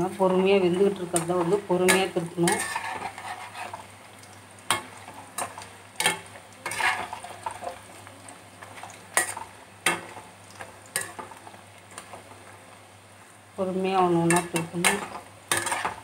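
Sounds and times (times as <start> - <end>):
food deep-frying in oil: 0.0 - 16.0.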